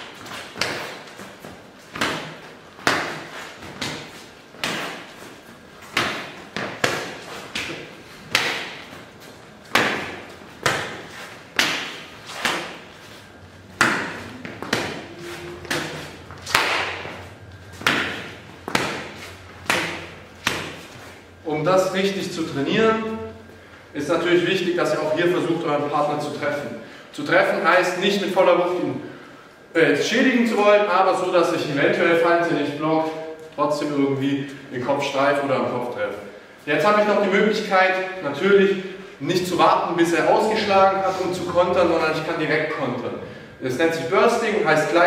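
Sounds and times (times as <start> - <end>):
arm striking forearm guard: 1.9 - 5.1, 5.9 - 8.9, 9.7 - 12.8, 13.8 - 15.0, 15.7 - 17.2, 17.8 - 20.9.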